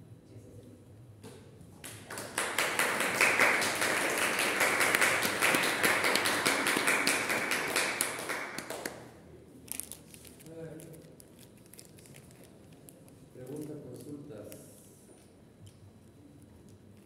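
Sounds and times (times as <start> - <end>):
group applauding: 1.8 - 9.1.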